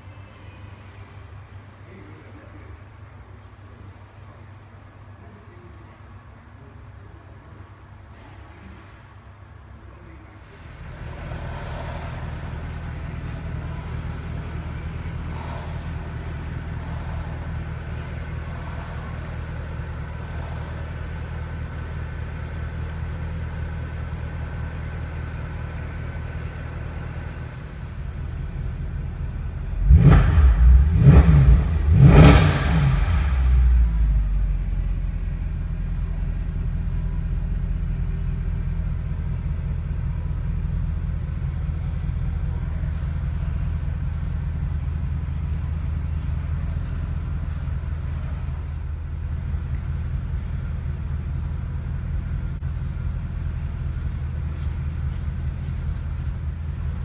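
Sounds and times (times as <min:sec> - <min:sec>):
car engine idling: 0:06.0 - 0:57.0
engine revving: 0:10.8 - 0:21.9, 0:29.6 - 0:34.8.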